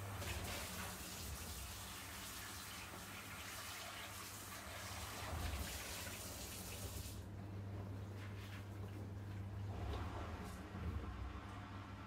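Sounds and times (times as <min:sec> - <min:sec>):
water splashing over frying pan: 0:00.0 - 0:07.2.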